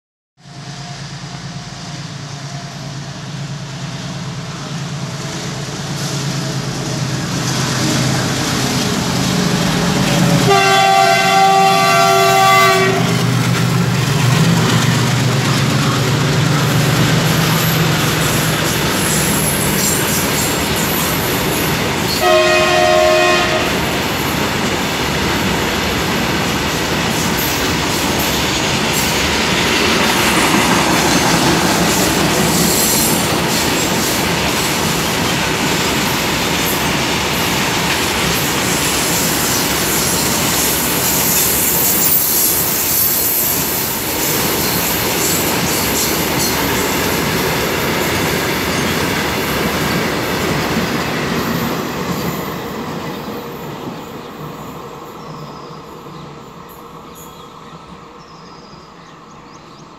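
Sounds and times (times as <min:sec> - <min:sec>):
locomotive drone: 0:00.4 - 0:59.9
train horn blast: 0:09.9 - 0:13.4, 0:22.1 - 0:24.0.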